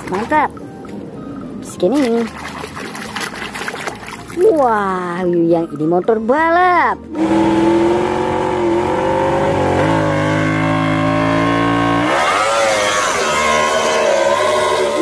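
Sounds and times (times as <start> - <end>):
racing motorcycle engine revving: 7.1 - 15.0.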